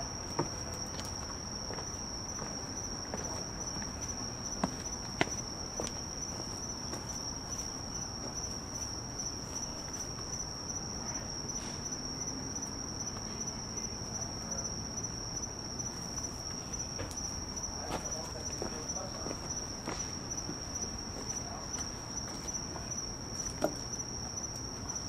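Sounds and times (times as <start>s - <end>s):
night insects trilling: 0.0s - 25.0s.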